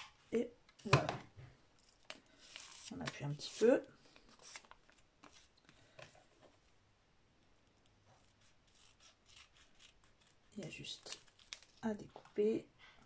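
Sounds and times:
scissor snips: 8.3 - 10.4.

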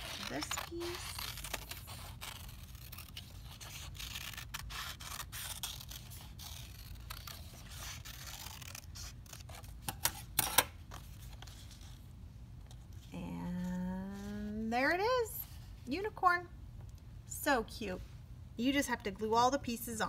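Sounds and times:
paper rustling: 0.0 - 10.0
scissors snipping paper: 0.0 - 10.7.

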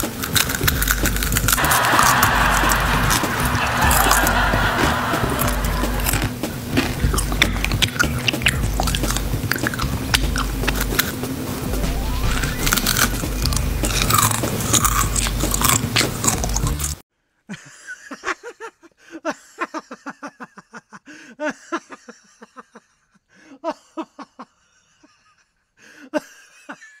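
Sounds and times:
background music: 0.0 - 17.0
person chewing crunchy food: 0.0 - 17.0
short pitched notes: 1.5 - 15.0.

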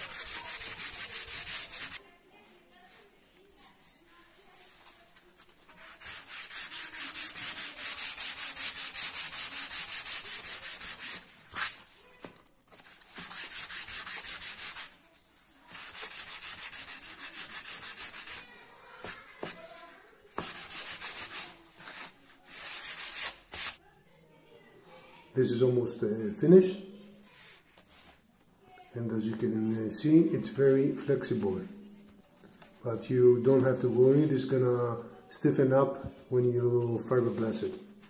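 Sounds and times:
sandpaper scraping foam: 0.0 - 2.0, 5.7 - 12.0, 12.9 - 15.0, 15.6 - 23.8.

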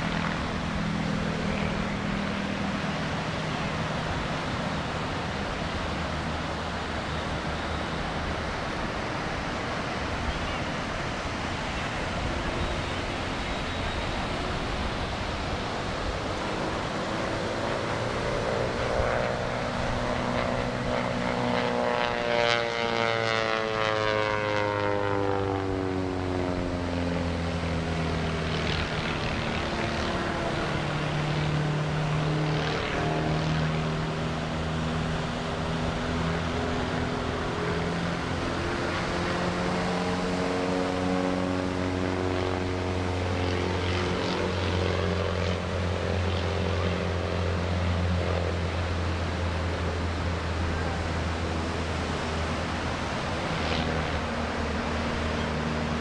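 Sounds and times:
propeller plane engine droning: 0.0 - 56.0.

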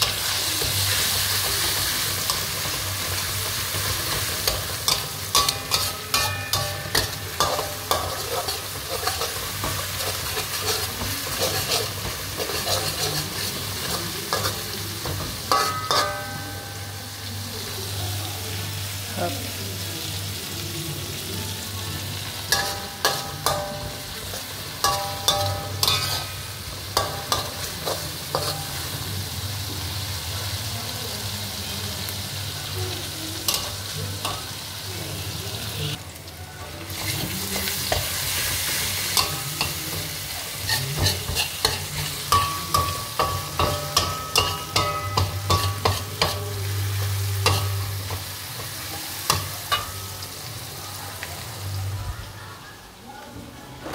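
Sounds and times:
metal spatula scraping a wok: 0.0 - 17.2, 22.4 - 29.0, 36.9 - 50.4
paste sizzling in oil: 0.0 - 36.0, 36.8 - 50.8.

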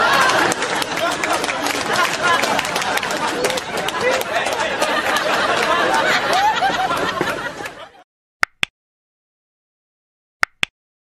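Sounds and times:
woman laughing: 4.8 - 8.0
click sound effect: 8.4 - 8.7, 10.4 - 10.7.

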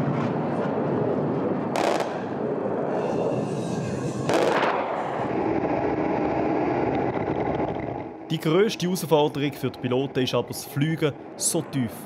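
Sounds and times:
jet flight noise: 0.0 - 12.0
jet cannon firing bursts: 1.8 - 2.3, 4.3 - 4.8.

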